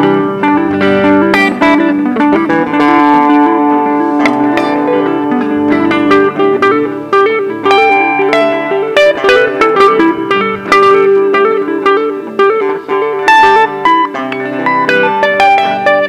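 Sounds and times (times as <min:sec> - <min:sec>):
electric guitar lead line: 0:00.0 - 0:16.0.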